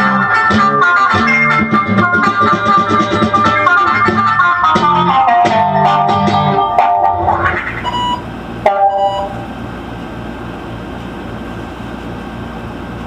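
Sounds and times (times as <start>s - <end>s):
synthesizer chord: 0.0s - 7.8s, 8.6s - 9.5s.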